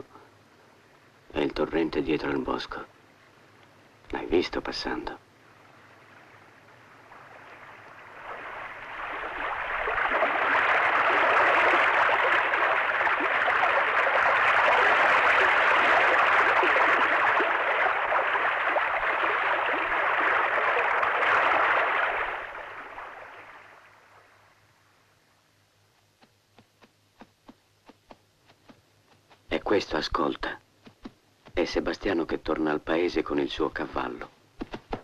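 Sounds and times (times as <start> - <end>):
rushing stream water: 4.3 - 24.4.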